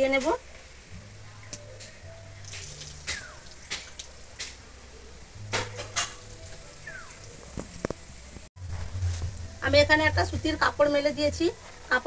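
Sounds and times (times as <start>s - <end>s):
water poured from bowl: 2.4s - 4.3s.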